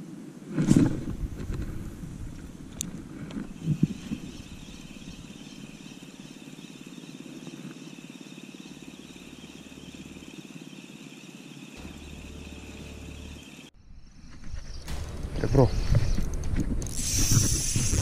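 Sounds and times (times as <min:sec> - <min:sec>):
fishing reel whirring: 0:16.8 - 0:18.0.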